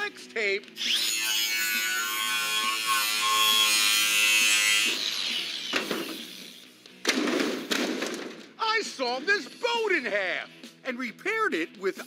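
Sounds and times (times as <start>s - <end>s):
angle grinder cutting metal: 0.8s - 6.6s.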